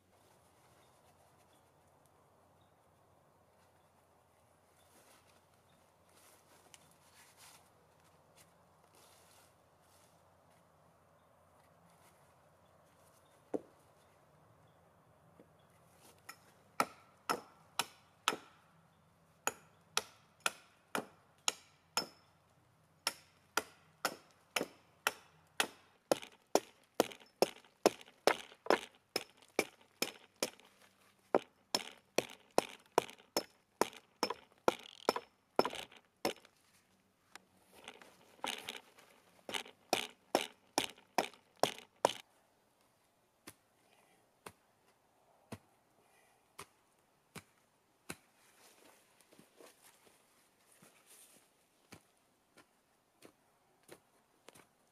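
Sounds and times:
hatchet chopping log: 16.3 - 18.6, 19.4 - 22.3, 23.0 - 30.7, 31.3 - 36.5, 39.5 - 42.2.

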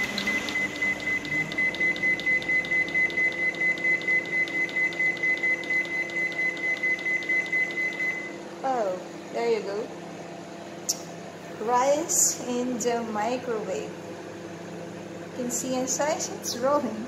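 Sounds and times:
microwave keypad beeping rapidly: 0.0 - 8.3
microwave oven humming: 0.0 - 17.0.

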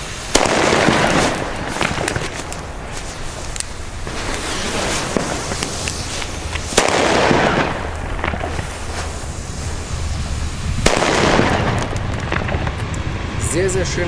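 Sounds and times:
firecrackers popping: 0.0 - 13.2
sharp bang with rumbling echo: 10.8 - 13.0.

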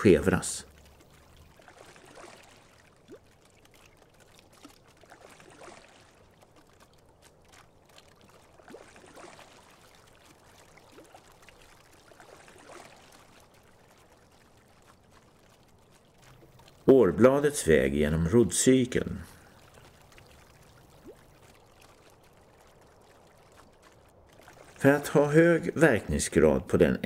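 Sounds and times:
oar blades swishing in water: 0.0 - 18.3, 18.9 - 26.6.

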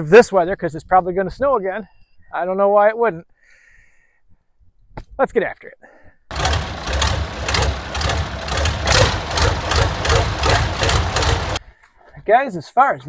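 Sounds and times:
tractor diesel engine idling: 6.3 - 11.6.

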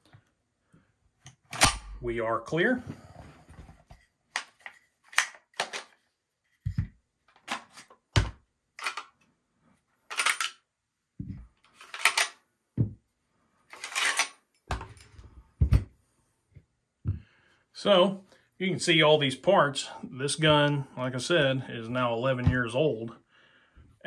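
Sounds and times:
rifle parts clicking and clacking: 1.2 - 2.0, 4.3 - 6.0, 7.3 - 8.0, 8.8 - 9.2, 10.1 - 10.6, 11.6 - 12.4, 13.7 - 15.2
metal parts scraping slides: 13.7 - 14.4.

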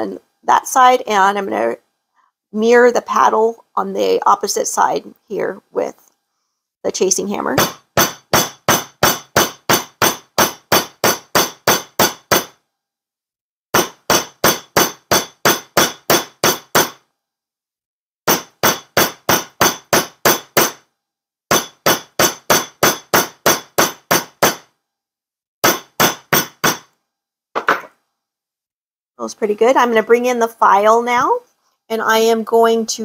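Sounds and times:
hammer tapping copper wire on steel: 7.6 - 12.6, 13.8 - 17.0, 18.3 - 20.8, 21.5 - 24.6, 25.6 - 27.0.

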